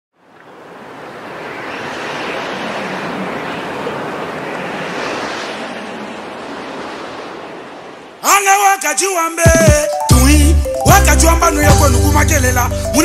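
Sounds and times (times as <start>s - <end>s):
rushing surf-like noise: 0.2s - 9.0s.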